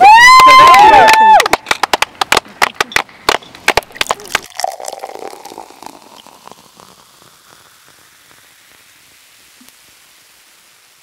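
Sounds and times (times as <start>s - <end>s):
person cheering: 0.0s - 1.6s
people clapping: 0.0s - 5.0s
steady hiss: 1.6s - 11.0s.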